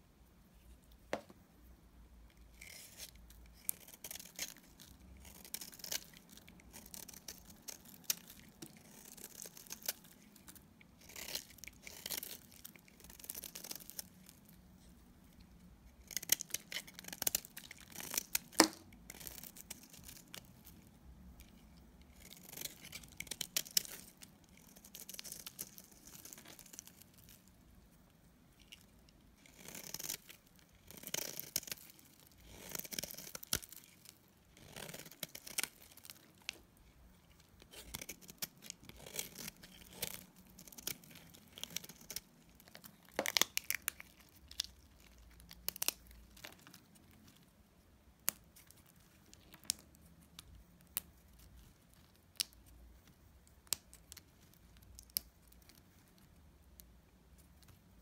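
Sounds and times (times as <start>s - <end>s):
knife scraping soap: 2.5s - 14.1s, 29.4s - 45.0s.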